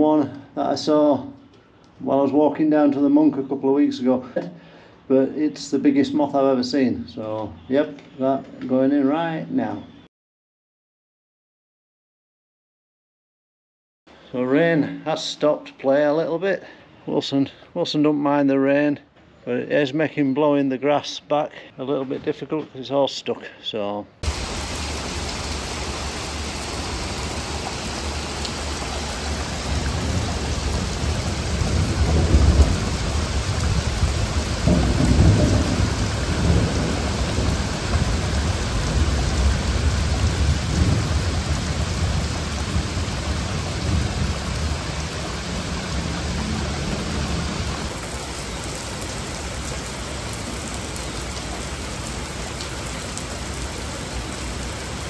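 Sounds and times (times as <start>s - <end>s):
steady rain falling: 24.2s - 55.0s
rolling thunder: 29.3s - 48.0s.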